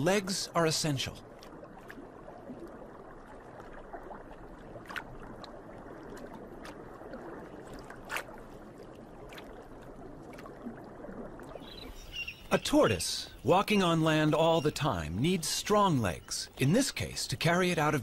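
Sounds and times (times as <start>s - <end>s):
underwater water rush: 0.0s - 12.0s.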